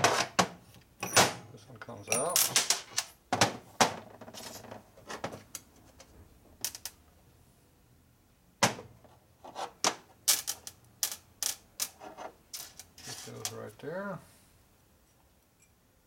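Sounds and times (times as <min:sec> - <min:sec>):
metal clinks and knocks: 0:01.0 - 0:01.4, 0:02.0 - 0:03.2.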